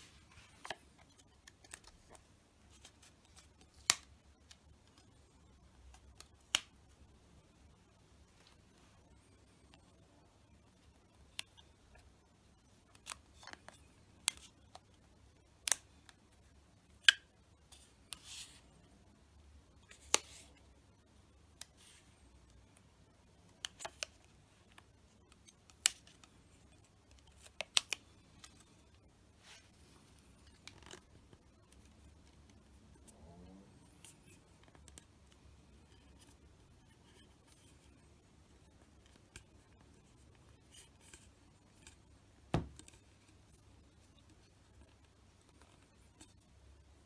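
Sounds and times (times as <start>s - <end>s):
vinyl film clicking: 5.8s - 6.8s, 15.6s - 16.2s, 23.5s - 28.8s
vinyl film crinkling: 23.6s - 32.7s.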